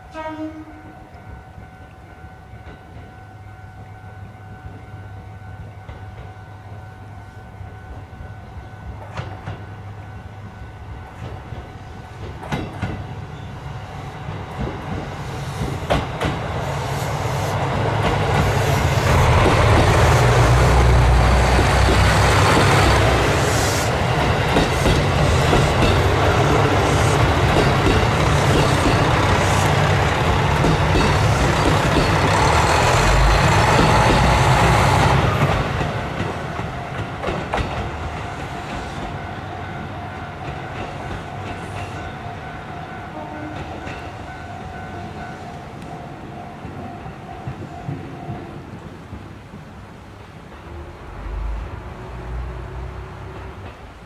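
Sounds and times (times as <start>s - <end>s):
train wheel noise: 1.2s - 54.0s
diesel train engine rumble: 1.4s - 54.0s
wheels clicking over rail joints: 21.2s - 23.4s, 24.0s - 39.2s.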